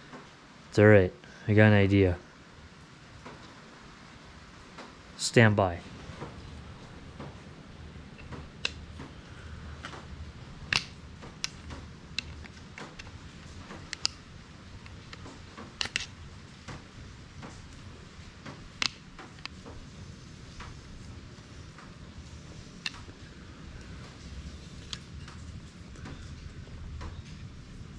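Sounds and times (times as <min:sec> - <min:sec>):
low steady hum: 0:00.0 - 0:27.9
plastic and metal clicks: 0:10.7 - 0:14.2, 0:14.8 - 0:16.1.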